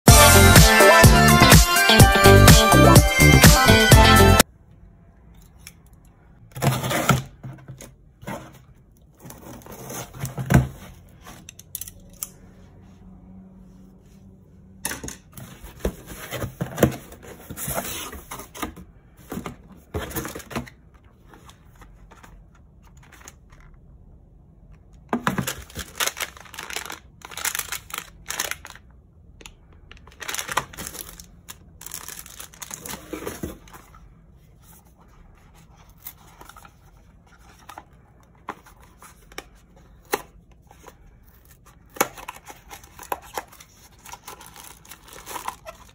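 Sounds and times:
cardboard rustling and tearing: 0:25.4 - 0:28.8, 0:30.1 - 0:33.7.

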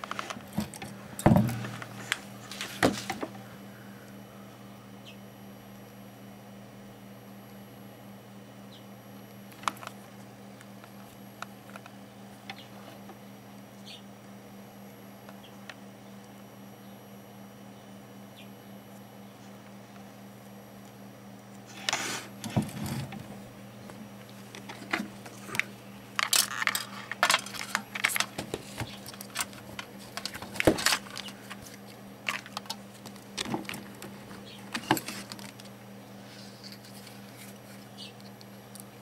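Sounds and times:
faint steady hum: 0:00.0 - 0:39.0
small tools clicking and clattering: 0:24.5 - 0:35.7.

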